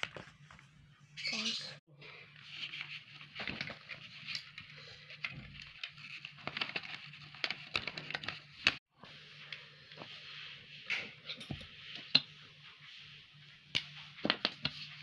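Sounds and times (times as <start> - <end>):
paper rustling and crinkling: 0.0 - 0.8, 2.3 - 8.8.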